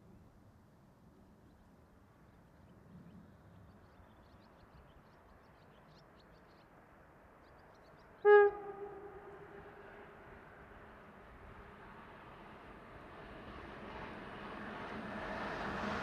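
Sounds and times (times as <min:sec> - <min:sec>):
train horn blast: 0:08.2 - 0:10.2.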